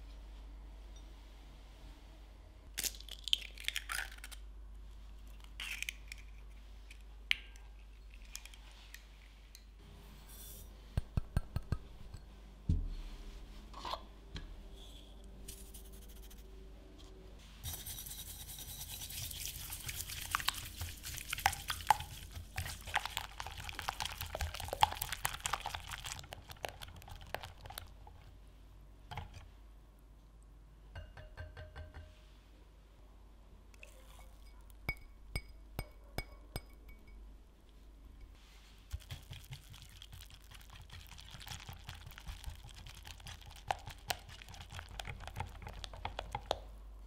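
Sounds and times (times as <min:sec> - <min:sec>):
thump: 0:12.7 - 0:13.0.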